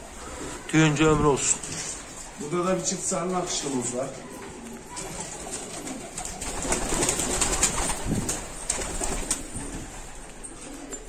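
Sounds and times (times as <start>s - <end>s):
clicks and rustling among birds: 3.2s - 11.0s
pigeons cooing: 4.1s - 11.0s.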